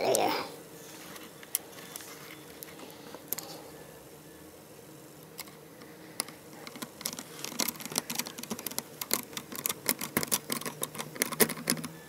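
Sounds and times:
screwdriver clicking on plastic case: 6.2s - 11.9s.

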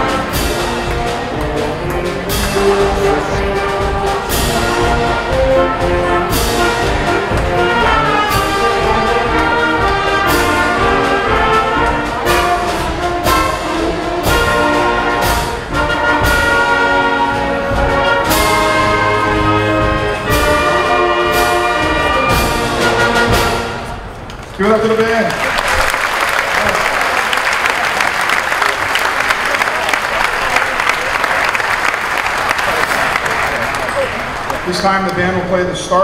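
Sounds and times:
percussion strokes: 0.0s - 24.5s
concert band playing: 0.0s - 36.0s.

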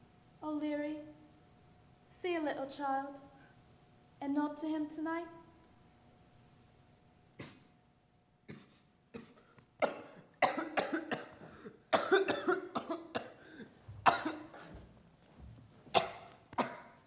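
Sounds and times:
man coughing harshly: 8.5s - 14.8s, 15.9s - 17.0s.

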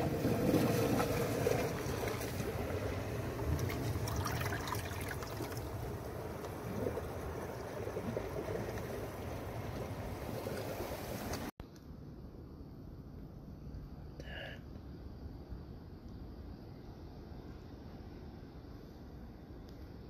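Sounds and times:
seawater washing over rocks: 0.0s - 11.5s.

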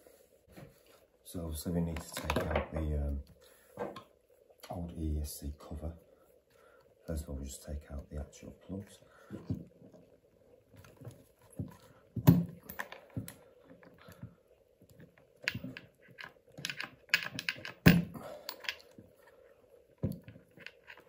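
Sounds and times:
clicks and knocks of plastic parts: 1.9s - 2.9s, 14.9s - 19.0s.

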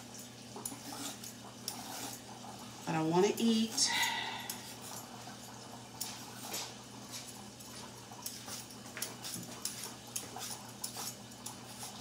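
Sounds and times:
peeler scraping carrot: 0.6s - 2.4s, 8.1s - 12.0s.

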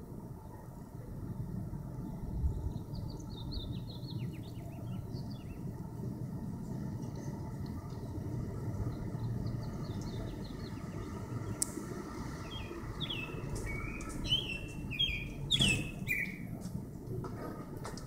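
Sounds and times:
low background rumble: 0.0s - 18.0s
songbird whistling: 12.5s - 16.5s.

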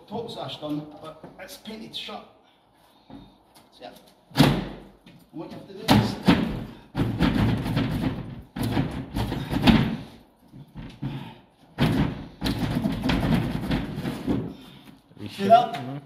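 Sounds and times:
window sash knocking and banging: 4.3s - 5.0s, 5.8s - 10.2s, 10.8s - 14.7s.

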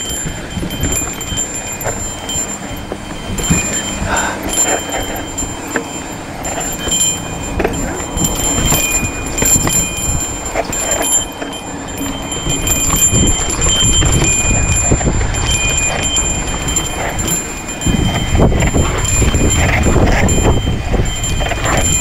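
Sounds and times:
bike rattling and clicking: 0.0s - 22.0s
wind rumbling on microphone: 0.0s - 22.0s.

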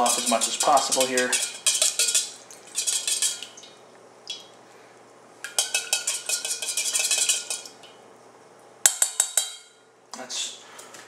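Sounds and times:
metal spoon scraping saucepan: 0.0s - 3.5s, 5.5s - 7.7s.

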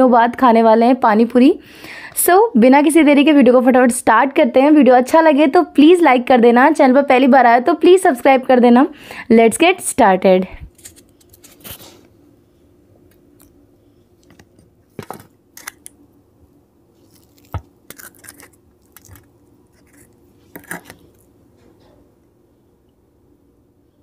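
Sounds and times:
fried shells crackling and crunching: 14.2s - 16.0s, 16.9s - 21.4s.

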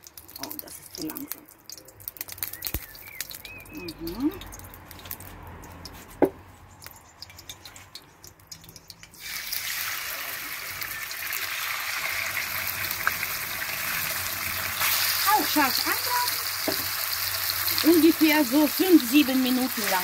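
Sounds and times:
meat sizzling in hot oil: 0.0s - 3.7s, 9.1s - 20.0s
oil ticking while heating: 0.0s - 6.1s, 6.7s - 20.0s.

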